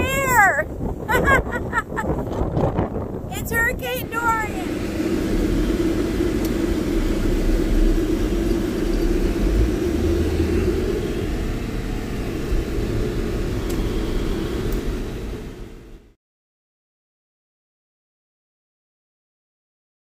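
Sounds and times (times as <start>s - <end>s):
car interior road rumble: 0.0s - 16.0s.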